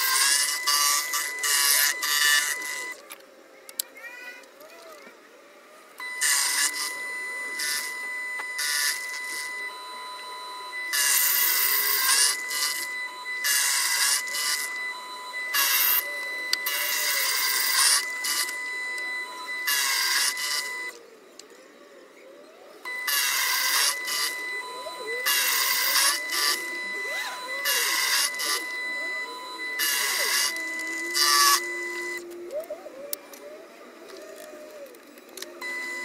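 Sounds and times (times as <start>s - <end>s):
end mill cutting metal: 0.0s - 3.0s, 6.0s - 21.0s, 22.9s - 32.2s
milling machine whine: 0.0s - 3.2s, 5.5s - 36.0s.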